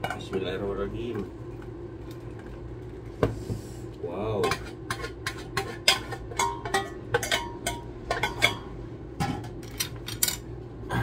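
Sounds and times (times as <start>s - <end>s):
pot and utensils clinking on bowl: 4.4s - 10.4s.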